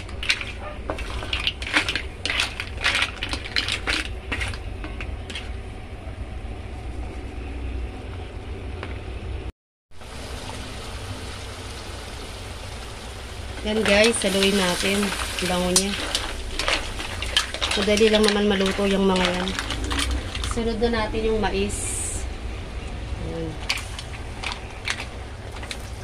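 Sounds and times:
shells clattering in a wok: 0:00.0 - 0:05.5, 0:13.8 - 0:20.6
butter sizzling: 0:10.0 - 0:22.0.

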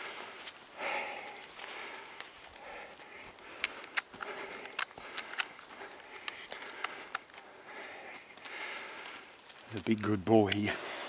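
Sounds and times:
footsteps through dry grass: 0:00.0 - 0:06.0.

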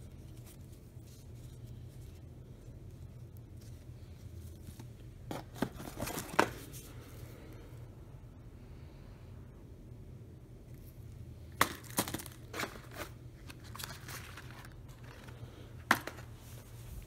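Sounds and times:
cardboard packaging rustling: 0:00.0 - 0:07.0, 0:11.6 - 0:17.0.

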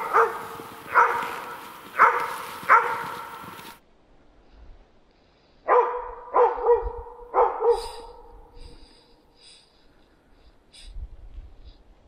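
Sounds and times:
dog barking: 0:00.0 - 0:03.4, 0:05.6 - 0:08.4.

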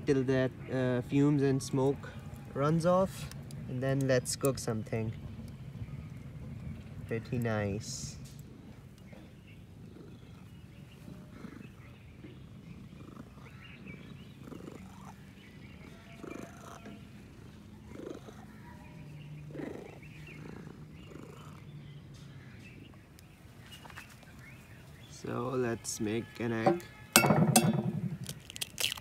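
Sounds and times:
cat purring: 0:05.9 - 0:22.2.

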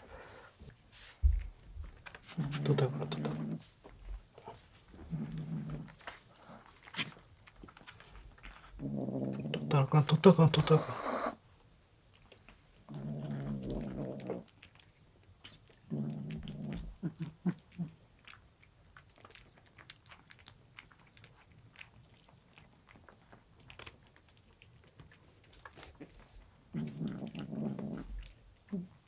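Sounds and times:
kitten crunching a treat: 0:01.2 - 0:29.0
kitten growling: 0:02.3 - 0:03.6, 0:04.4 - 0:07.2, 0:08.5 - 0:11.4, 0:12.8 - 0:18.4, 0:25.8 - 0:29.0.

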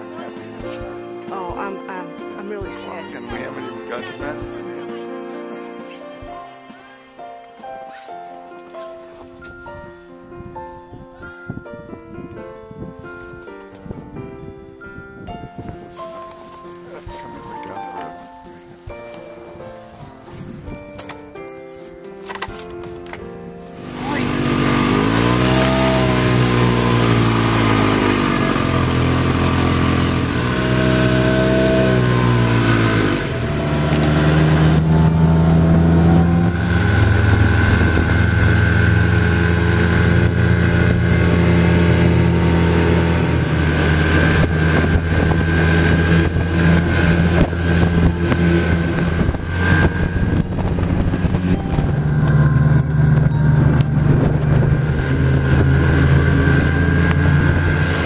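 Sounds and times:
snowmobile engine running: 0:23.8 - 0:58.0.

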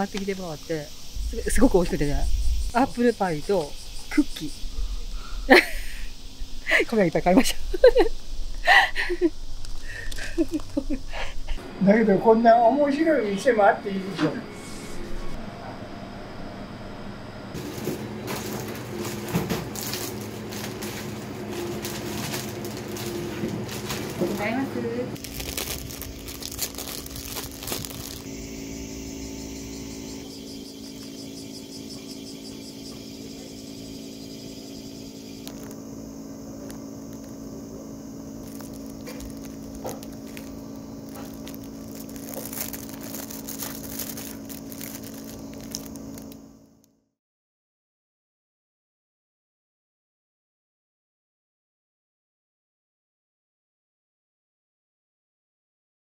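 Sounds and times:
steady low hum: 0:00.0 - 0:46.8
plastic bag rustling: 0:17.6 - 0:28.3, 0:38.2 - 0:46.4.

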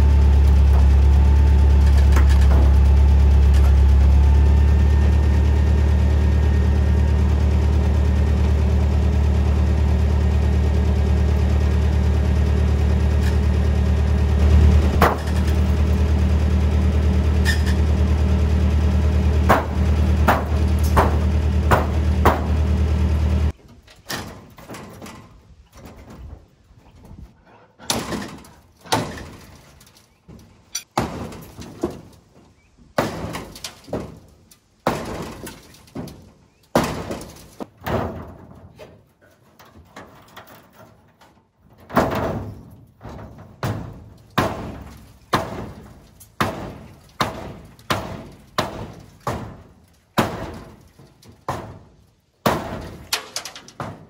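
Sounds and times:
engine idling: 0:00.0 - 0:23.6.

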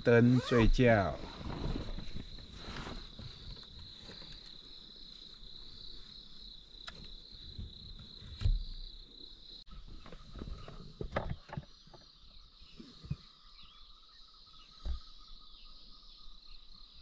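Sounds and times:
insects chirring: 0:00.0 - 0:17.0
thump: 0:14.8 - 0:15.1.

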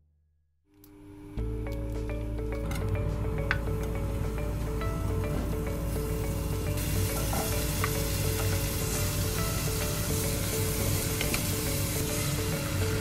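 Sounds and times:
soft background music: 0:01.2 - 0:13.0
food sizzling in hot oil: 0:05.9 - 0:13.0.

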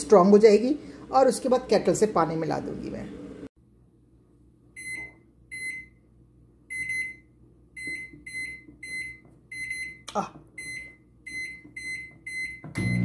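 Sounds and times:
microwave keypad beeps: 0:04.8 - 0:06.0, 0:06.7 - 0:10.0, 0:10.6 - 0:13.0.

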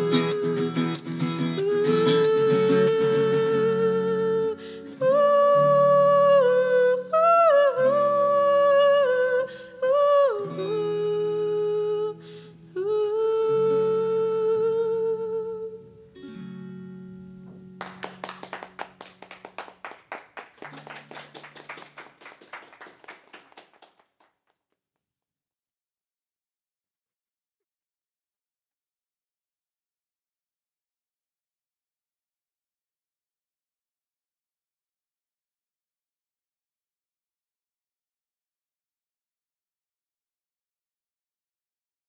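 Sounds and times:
woman singing: 0:00.0 - 0:16.1
acoustic guitar: 0:00.0 - 0:23.5.

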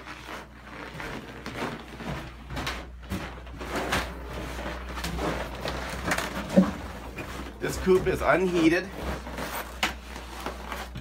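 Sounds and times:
footsteps crunching on snow: 0:00.0 - 0:11.0.

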